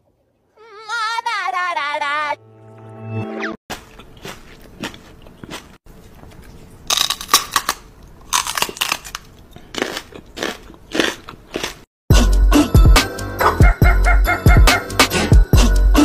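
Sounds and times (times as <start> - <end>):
close crunching and crackling: 3.7 - 11.9.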